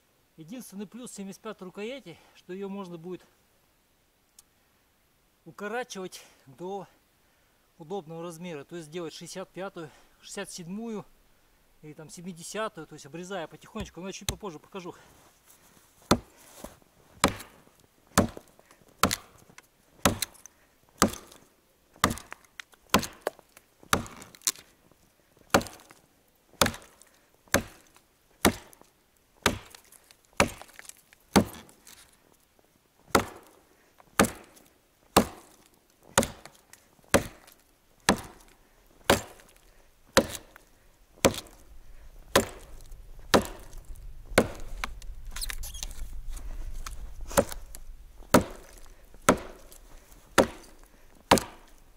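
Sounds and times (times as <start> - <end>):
axe chopping wood: 16.1 - 16.3, 17.2 - 19.4, 20.0 - 21.4, 22.0 - 24.6, 25.5 - 26.0, 26.6 - 28.8, 29.4 - 31.7, 33.1 - 33.6, 34.2 - 34.6, 35.2 - 41.7, 42.3 - 46.0, 46.8 - 51.8.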